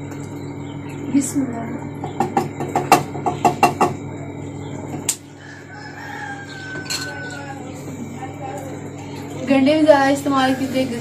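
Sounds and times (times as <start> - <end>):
rooster crowing: 5.2 - 8.0.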